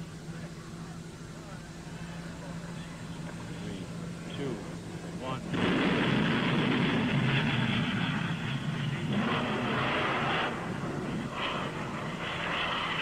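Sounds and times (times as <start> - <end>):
rocket roaring: 5.4 - 13.0.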